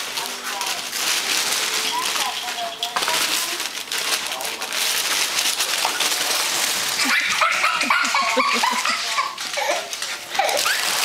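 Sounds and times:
plastic bag rustling: 0.0s - 11.0s
person laughing: 7.0s - 9.9s.

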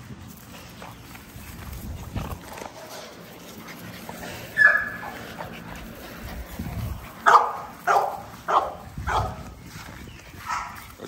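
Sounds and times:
puppies whimpering and yipping: 3.3s - 7.8s
puppy yelp: 4.5s - 5.2s
puppy bark: 4.6s - 5.2s, 7.2s - 9.4s, 10.4s - 10.8s.

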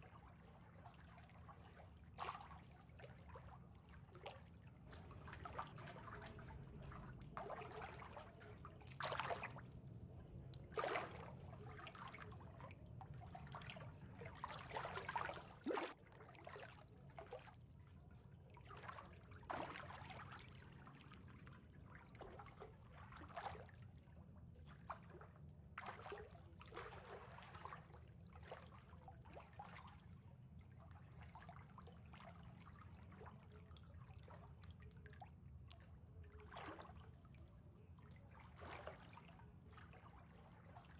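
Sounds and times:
pool water lapping: 0.0s - 40.9s
water splashes: 3.2s - 9.8s, 10.5s - 17.4s.

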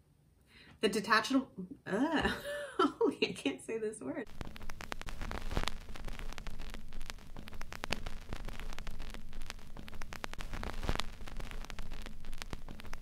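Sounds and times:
crackling static hiss: 0.0s - 13.0s
clicks and pops: 4.3s - 13.0s
low hum: 4.3s - 13.0s.

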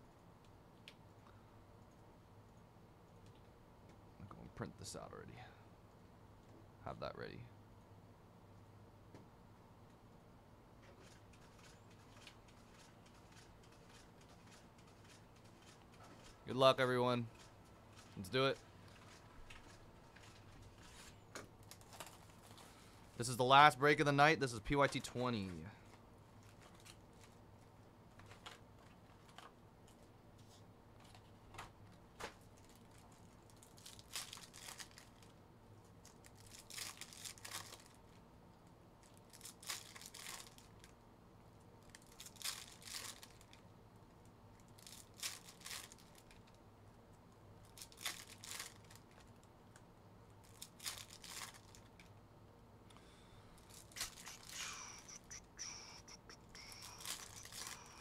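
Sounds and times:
foil wrappers crinkling: 17.3s - 23.3s, 32.4s - 35.4s, 36.0s - 38.2s, 39.0s - 40.9s, 41.8s - 43.6s, 44.6s - 46.6s, 47.6s - 49.4s, 50.4s - 52.1s, 53.6s - 58.0s
card packs tearing open: 33.8s - 35.2s, 36.3s - 37.9s, 39.4s - 40.7s, 50.5s - 51.9s, 53.7s - 58.0s.

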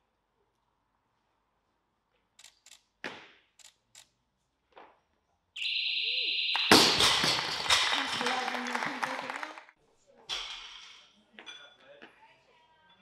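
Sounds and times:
electronic beep: 5.6s - 7.1s
crowd cheering and clapping: 6.6s - 9.7s
weight plates crashing onto platform: 6.7s - 8.4s.

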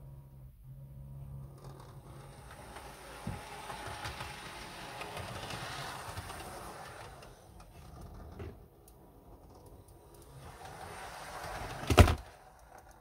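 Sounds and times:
wheels rumbling over rails: 1.0s - 13.0s
model train motor whirring: 1.4s - 8.2s, 9.4s - 13.0s.

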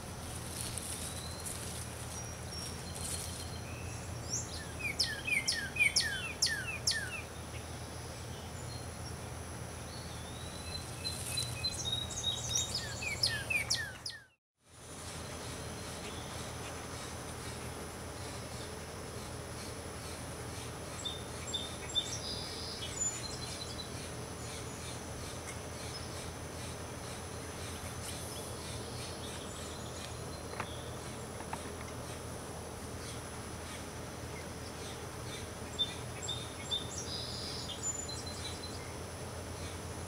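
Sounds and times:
steady background hiss: 0.0s - 40.0s.

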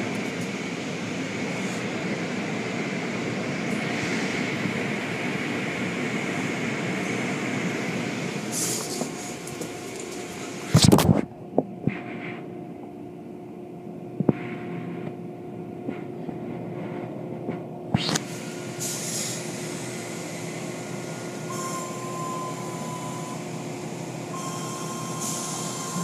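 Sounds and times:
car wash machinery hum: 14.2s - 26.0s.

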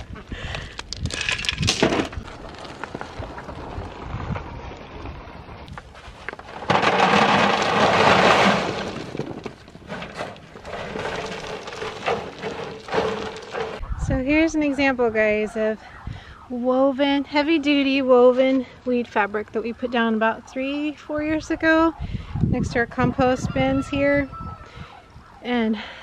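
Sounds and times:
gravel pouring and rattling: 0.4s - 13.8s
stones clacking: 0.6s - 3.6s, 5.7s - 13.8s
shovel scraping gravel: 5.8s - 13.8s.

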